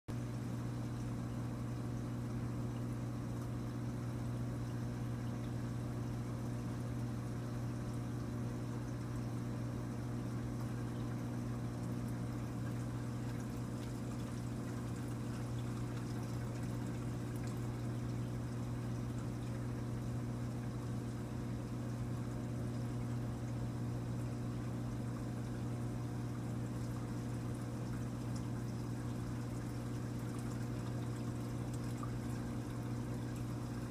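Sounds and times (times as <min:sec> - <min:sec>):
aquarium pump humming: 0:00.1 - 0:33.9
water pouring and trickling: 0:07.8 - 0:33.9.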